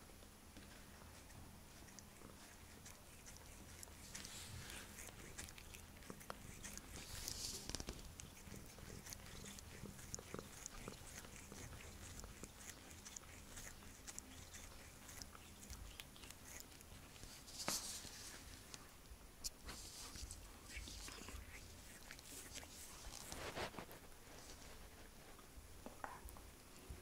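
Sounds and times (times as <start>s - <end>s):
cat licking its paw: 0.6s - 18.9s, 19.5s - 27.0s
brushing of fur: 2.6s - 9.7s, 16.5s - 18.8s, 19.6s - 25.4s.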